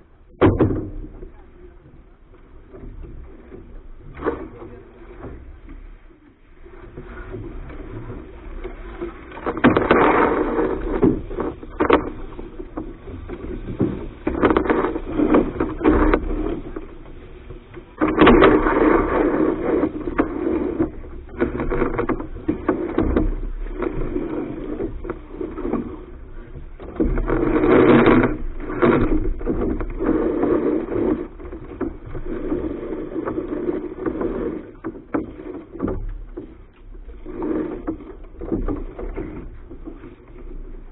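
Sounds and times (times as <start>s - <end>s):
wind and water rushing: 0.0s - 40.9s
knocks and scrapes on deck: 0.3s - 6.0s, 6.6s - 40.9s.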